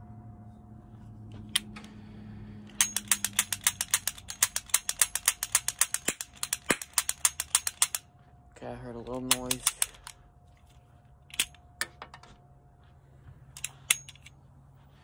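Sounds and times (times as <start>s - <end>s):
cap revolver mechanism clicking: 2.7s - 8.1s, 9.2s - 10.2s, 11.3s - 11.6s, 13.6s - 14.3s.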